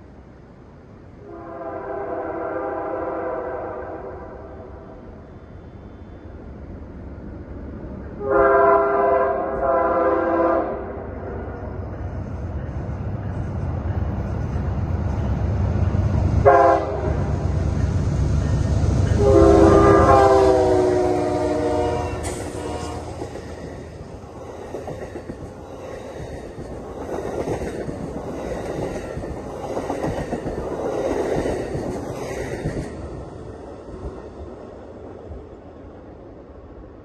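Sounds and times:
train air horn: 0:01.2 - 0:04.8, 0:08.2 - 0:11.0, 0:16.4 - 0:17.3, 0:19.1 - 0:23.7
diesel locomotive rumble: 0:11.0 - 0:36.1.

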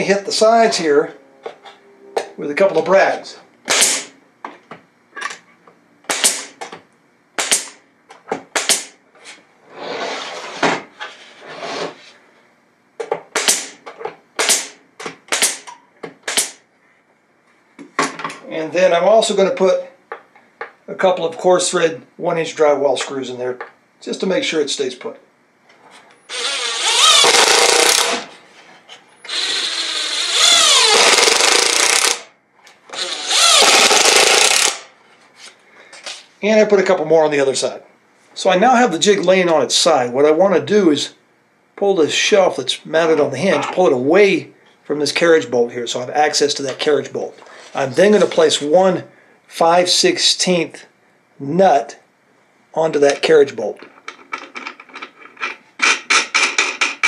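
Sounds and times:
impact driver driving screws: 0:03.7 - 0:04.1, 0:26.3 - 0:28.3, 0:29.3 - 0:32.3, 0:32.9 - 0:34.8
nail gun firing: 0:03.7 - 0:04.2, 0:06.1 - 0:06.6, 0:07.4 - 0:07.8, 0:08.5 - 0:09.0, 0:13.3 - 0:13.8, 0:14.4 - 0:16.6, 0:26.4 - 0:28.3, 0:30.4 - 0:32.3, 0:33.2 - 0:34.9, 0:55.8 - 0:57.0.

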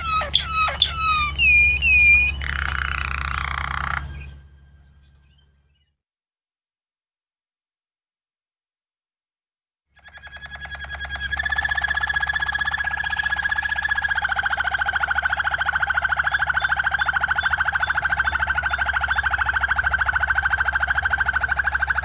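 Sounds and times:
canary trilling: 0:00.0 - 0:05.4, 0:10.0 - 0:22.0.

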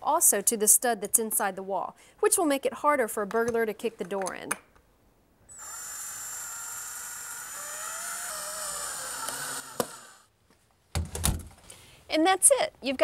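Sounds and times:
cordless drill motor whining: 0:05.5 - 0:10.3.

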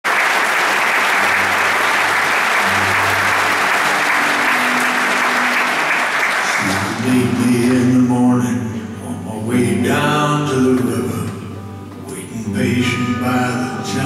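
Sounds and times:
audience applauding: 0:00.0 - 0:08.3
acoustic guitar playing: 0:00.8 - 0:14.0.

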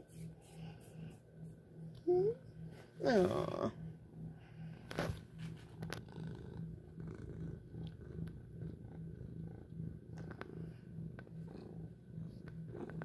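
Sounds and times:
cat purring: 0:03.0 - 0:13.0.

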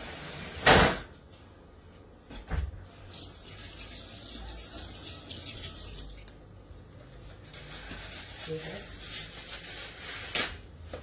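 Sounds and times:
kitchen tap running: 0:02.8 - 0:06.2.

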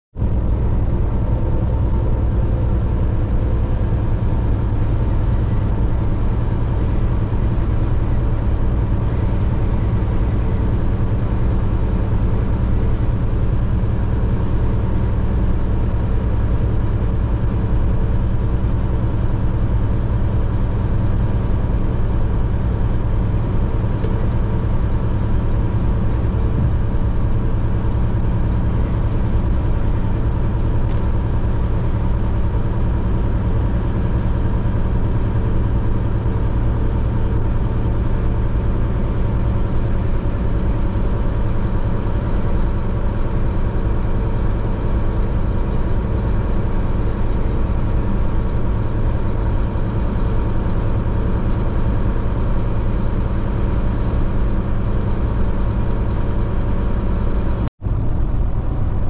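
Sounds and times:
vehicle driving at highway speed: 0:00.2 - 0:59.0.

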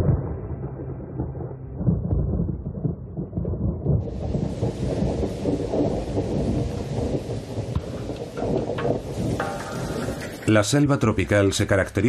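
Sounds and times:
thunder rumbling: 0:00.0 - 0:11.6
rain hissing: 0:04.0 - 0:11.7.

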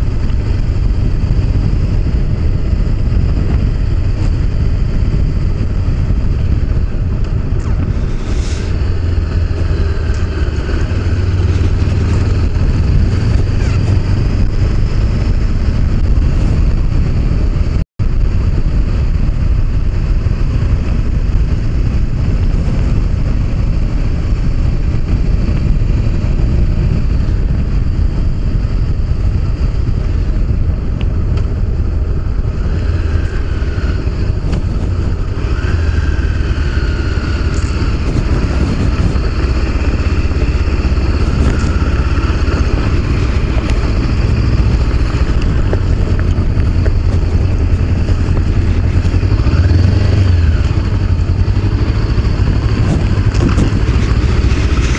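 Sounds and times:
motorcycle engine running: 0:00.0 - 0:54.9
wind noise on microphone: 0:00.0 - 0:54.9.

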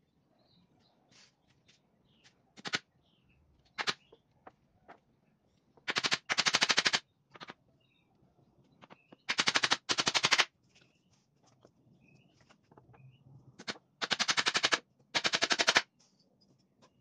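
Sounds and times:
hammer nailing wood: 0:09.2 - 0:10.5, 0:13.6 - 0:15.8.

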